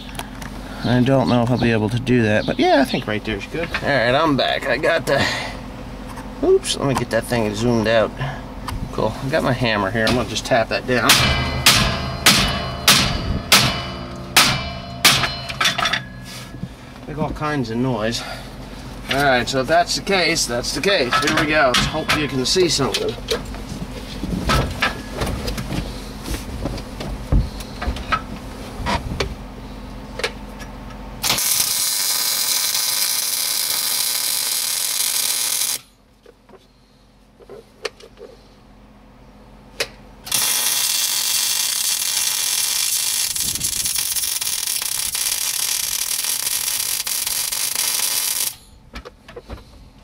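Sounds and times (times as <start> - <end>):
welding arc hissing: 31.2 - 35.9, 40.3 - 48.7.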